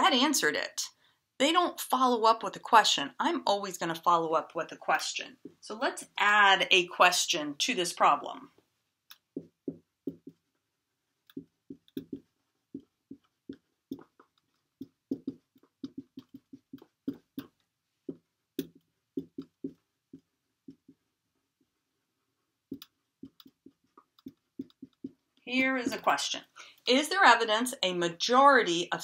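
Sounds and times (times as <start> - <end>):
marker writing on whiteboard: 9.1 - 21.7, 22.7 - 26.3.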